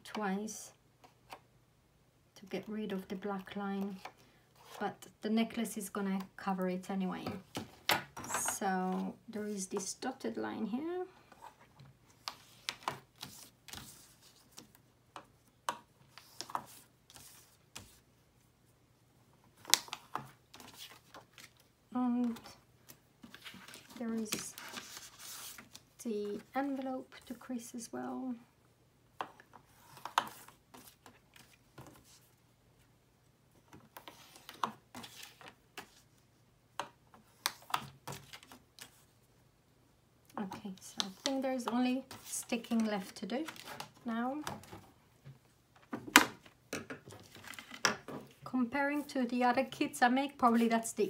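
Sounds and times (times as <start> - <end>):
paper rustling: 23.2 - 26.9.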